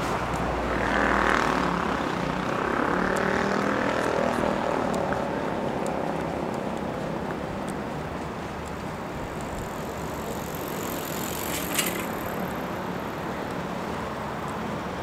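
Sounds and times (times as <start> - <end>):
traffic-like noise: 0.0 - 15.0
engine drone with held tones: 8.6 - 13.8.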